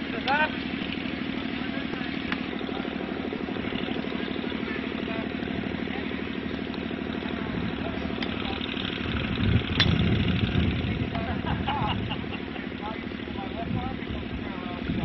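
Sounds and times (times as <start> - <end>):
engine idling: 0.0 - 15.0.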